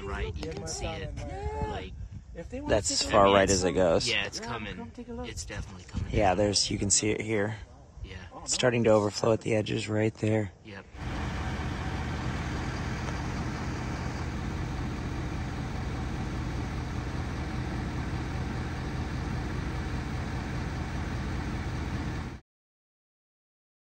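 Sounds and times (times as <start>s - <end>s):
engine drone: 11.0s - 22.4s.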